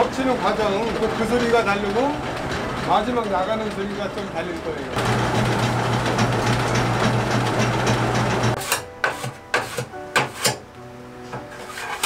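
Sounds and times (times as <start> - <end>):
workshop machine humming and rattling: 0.0 - 10.6, 11.3 - 12.0
knocks and scrapes in metal hopper: 7.8 - 10.6, 11.3 - 12.0.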